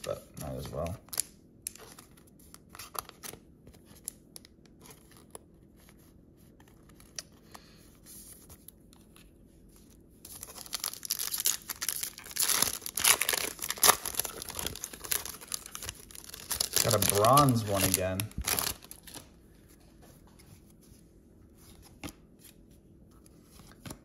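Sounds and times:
foil wrapper tearing and crinkling: 10.3s - 19.3s.

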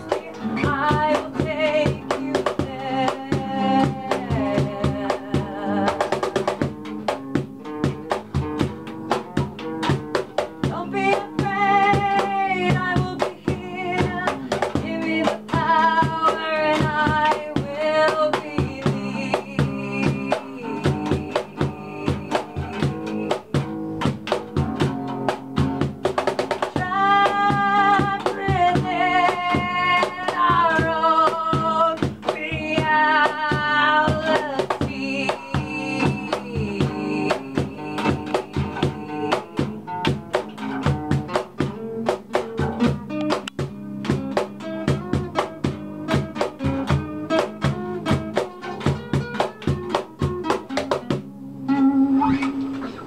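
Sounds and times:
woman singing: 0.0s - 8.4s, 10.6s - 25.9s, 26.5s - 41.2s
acoustic guitars strumming: 0.0s - 53.0s
cajon beating a rhythm: 0.0s - 53.0s.

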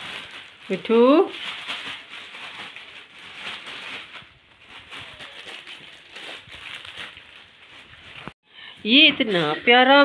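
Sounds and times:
plastic bags crinkling: 0.0s - 8.4s.

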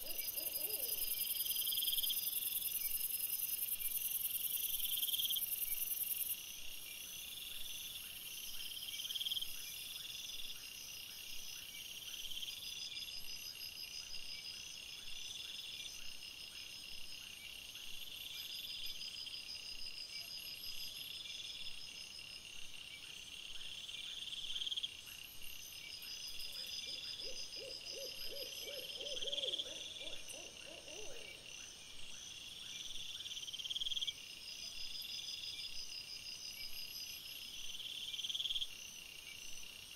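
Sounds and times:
insects chirping: 0.0s - 39.9s
rapidly pulsed animal call: 26.6s - 31.4s.

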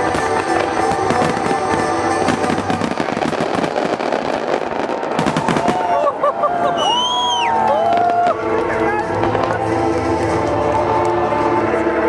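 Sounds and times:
fireworks bursting and crackling: 0.0s - 11.6s
music playing: 0.0s - 12.0s.

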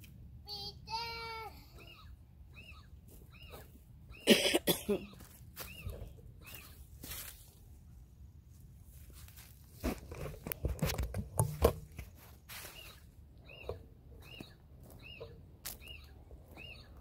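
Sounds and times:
phone being handled: 9.9s - 12.2s.

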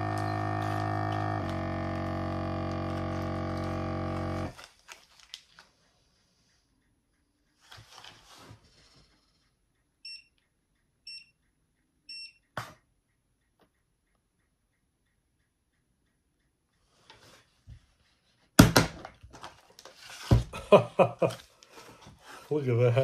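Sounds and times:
steady droning tone: 0.0s - 4.5s
short electronic beeps: 10.0s - 10.4s, 11.1s - 11.4s, 12.1s - 12.4s.

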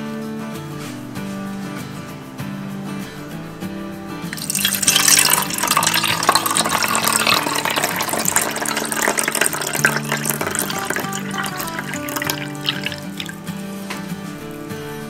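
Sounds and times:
soft guitar music: 0.0s - 15.0s
water pouring: 4.3s - 13.8s.

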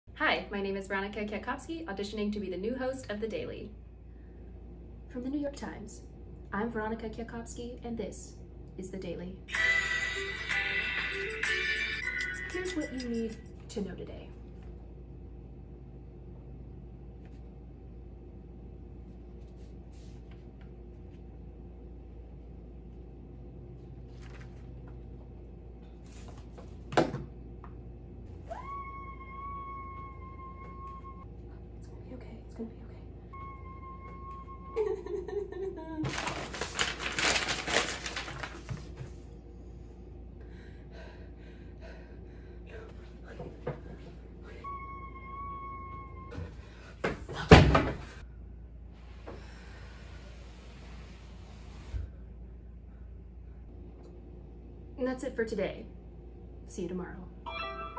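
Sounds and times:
low hum: 12.0s - 57.9s
paper rustling and crackling: 24.1s - 25.0s, 36.0s - 39.2s.

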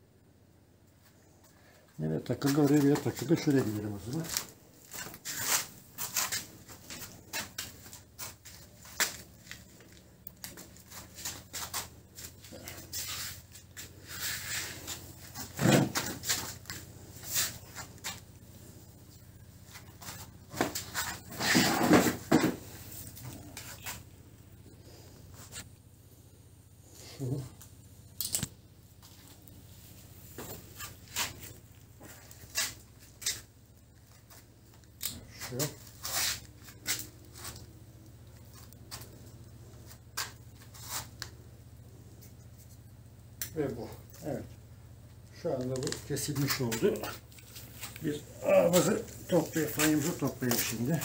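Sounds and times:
light clicks and scrapes: 48.8s - 51.0s.

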